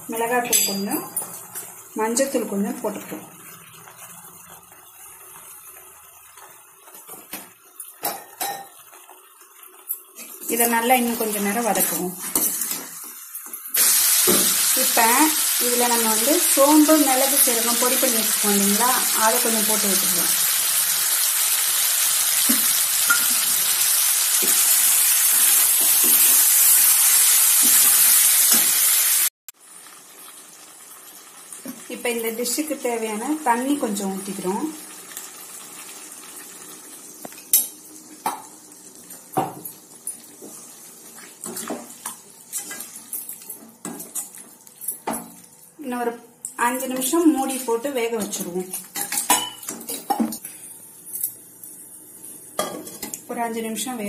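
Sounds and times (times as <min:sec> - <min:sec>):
chicken sizzling in a pan: 0:01.6 - 0:43.5.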